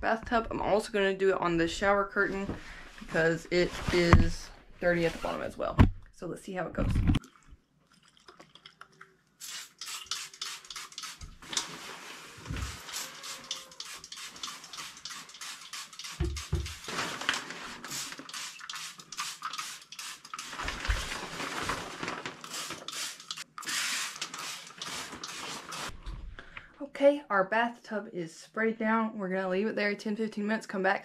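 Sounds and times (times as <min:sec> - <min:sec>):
spray bottle squirting: 0:09.4 - 0:11.7, 0:12.5 - 0:16.9, 0:17.9 - 0:20.7, 0:22.4 - 0:26.0.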